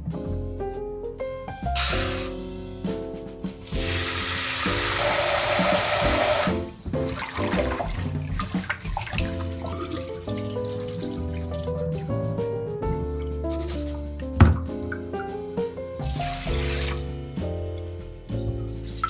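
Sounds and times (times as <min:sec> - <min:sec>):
hand swishing rice in water: 0:03.7 - 0:12.0
tap water running into pot: 0:03.7 - 0:12.1, 0:16.1 - 0:17.0.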